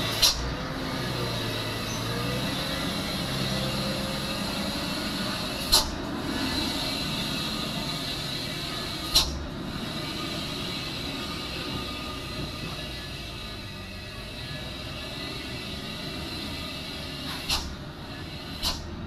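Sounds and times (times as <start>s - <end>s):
mechanical hum with hiss: 0.0s - 19.0s.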